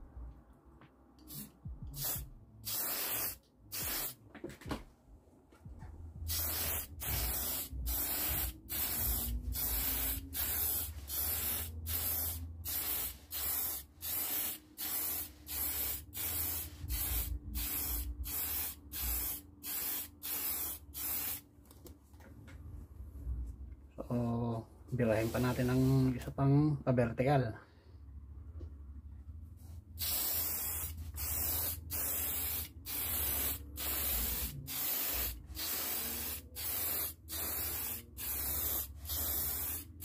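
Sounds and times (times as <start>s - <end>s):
aerosol spray hissing: 1.2s - 4.2s, 6.2s - 21.4s, 30.0s - 40.0s.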